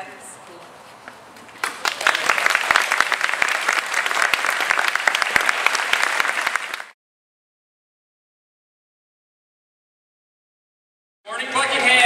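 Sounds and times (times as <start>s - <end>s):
audience applauding: 1.6s - 7.0s.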